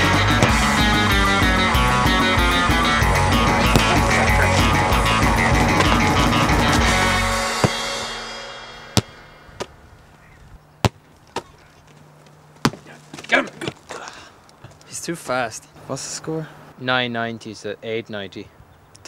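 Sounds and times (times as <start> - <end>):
rock music with electric guitar: 0.0 - 9.5
faint voices: 3.3 - 6.0
sharp knocks: 7.4 - 8.2.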